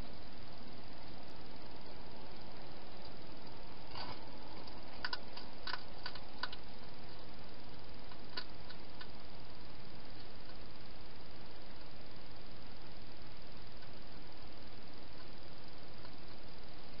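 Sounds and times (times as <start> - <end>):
steady hiss: 0.0 - 17.0
hedgehog crunching food: 2.3 - 10.7.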